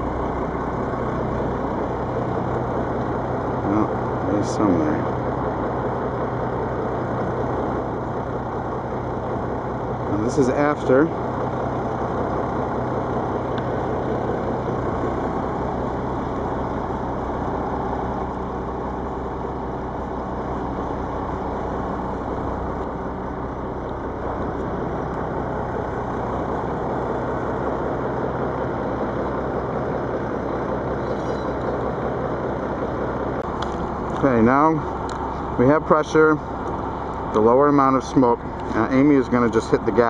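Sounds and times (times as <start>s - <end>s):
diesel bus engine idling: 0.0s - 40.0s.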